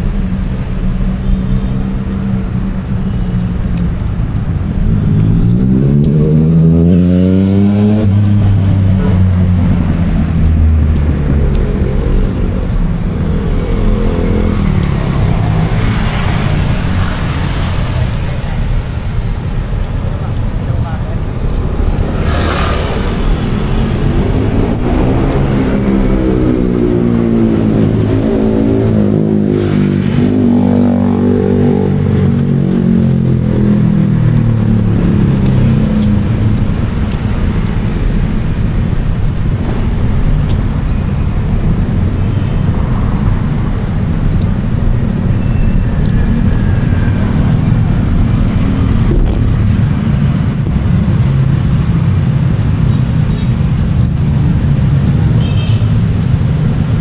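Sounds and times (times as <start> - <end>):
rumble of traffic: 0.0 - 57.0
car engine revving past: 21.7 - 33.0.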